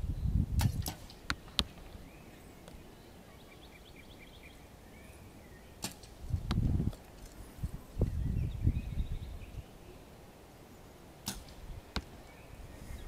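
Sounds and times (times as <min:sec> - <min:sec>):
bird chirping: 0:01.4 - 0:05.9, 0:08.0 - 0:10.1, 0:11.8 - 0:13.0.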